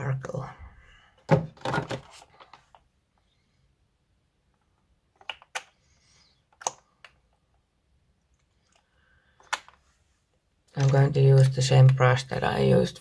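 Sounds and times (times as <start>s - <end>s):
small plastic clicks and taps: 5.1s - 5.8s.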